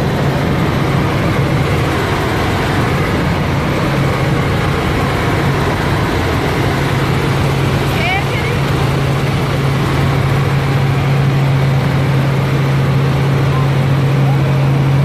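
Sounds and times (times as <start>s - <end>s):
helicopter engine and rotor drone: 0.0s - 15.0s.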